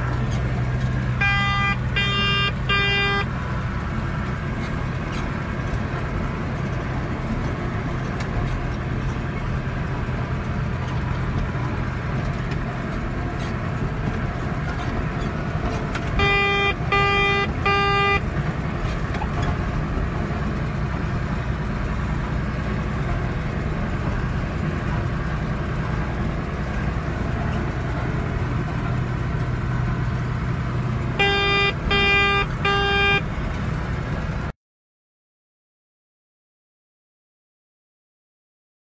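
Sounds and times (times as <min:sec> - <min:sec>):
tractor engine running: 0:00.0 - 0:34.5
loud beeps: 0:01.2 - 0:03.3, 0:16.2 - 0:18.2, 0:31.2 - 0:33.3.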